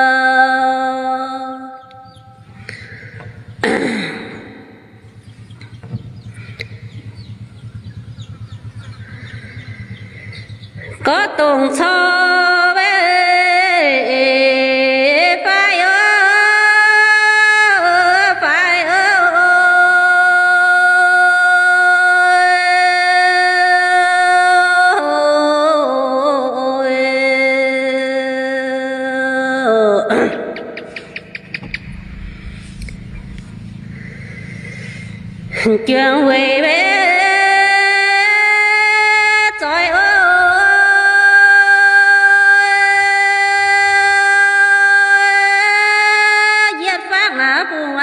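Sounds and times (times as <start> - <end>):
woman singing folk song: 0.0 - 1.9, 10.9 - 30.3, 35.6 - 48.0
low pulsing hum: 0.0 - 24.2, 26.4 - 46.8
person's throaty vocal sound: 2.6 - 4.9, 30.0 - 31.2.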